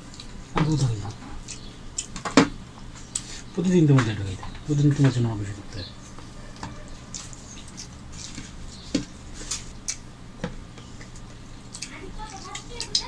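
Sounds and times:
wet smacks and chewing: 0:00.0 - 0:02.2, 0:06.9 - 0:10.1, 0:10.8 - 0:13.0
fingers scraping food on plates: 0:04.0 - 0:10.1.

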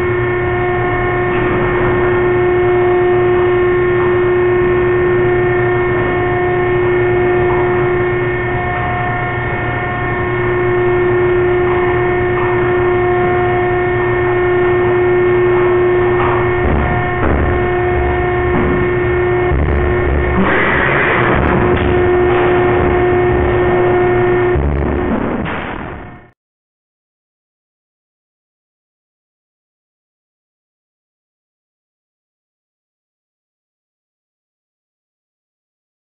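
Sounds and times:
loud burst of noise: 0:00.0 - 0:26.4
machinery humming drone: 0:00.0 - 0:26.4
low thumps: 0:16.2 - 0:26.3.

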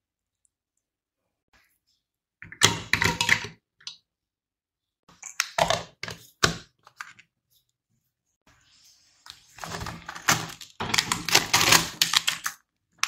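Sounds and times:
kitchenware clattering and knocking: 0:02.5 - 0:03.6, 0:09.7 - 0:12.0.

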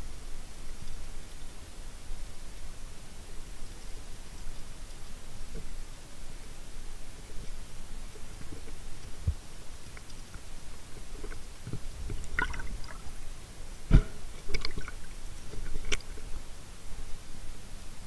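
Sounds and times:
muffled underwater water noise: 0:00.0 - 0:18.0.

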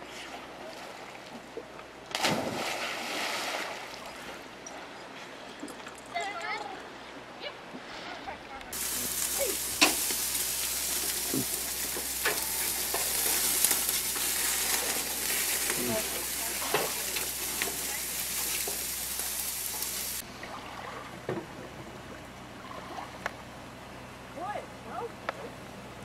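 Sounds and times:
meat sizzling on a grill: 0:08.8 - 0:20.2.

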